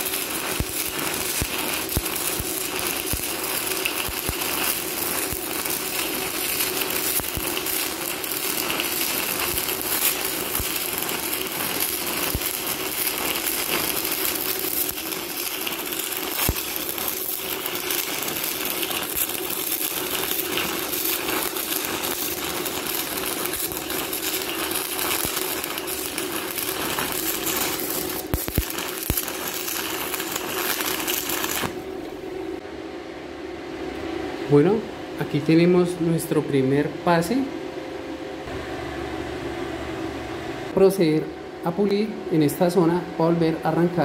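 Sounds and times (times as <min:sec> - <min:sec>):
welding arc crackling and popping: 0:00.0 - 0:32.2.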